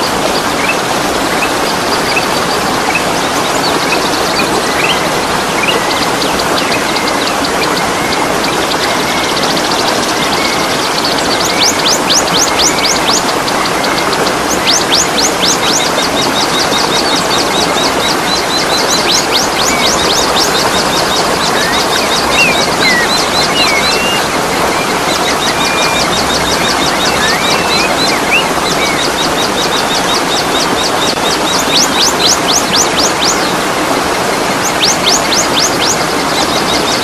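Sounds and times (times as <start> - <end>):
birds chirping: 0.0 - 37.0
rushing water: 0.0 - 37.0
whistled bird glides: 17.8 - 33.5.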